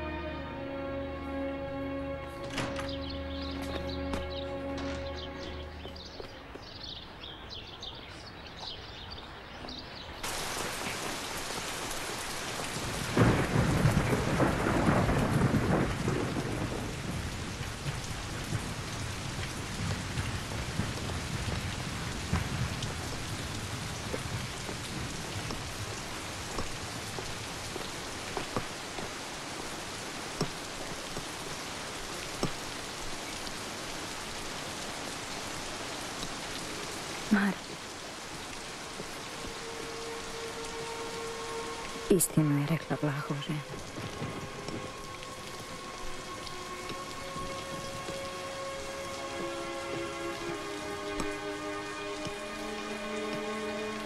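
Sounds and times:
steady heavy rain: 0.0 - 54.0
water dripping: 2.0 - 54.0
thunder rolling: 10.3 - 28.2, 43.6 - 48.4.

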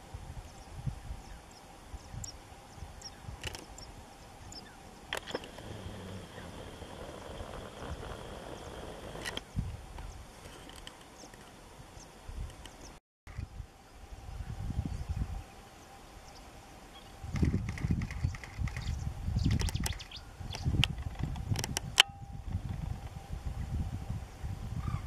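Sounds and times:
wind rumble on microphone: 0.0 - 25.0
sharp clicks: 19.5 - 20.1.

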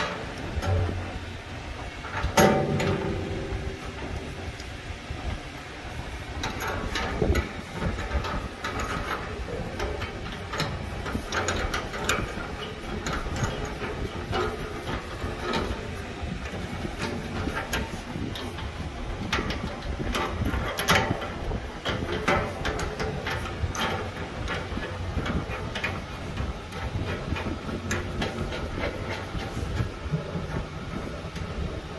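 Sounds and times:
low background rumble: 0.0 - 31.9
metal fittings clicking: 6.4 - 31.6.

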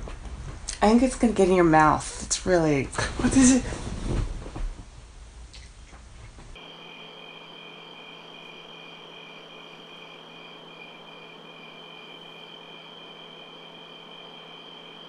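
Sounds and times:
faint room hiss: 0.0 - 15.0
crickets chirping: 6.6 - 15.0.

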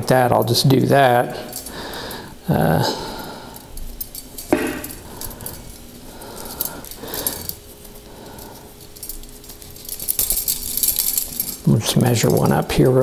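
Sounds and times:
bicycle spokes clinking: 0.2 - 13.0
metallic knocks: 4.5 - 5.0.

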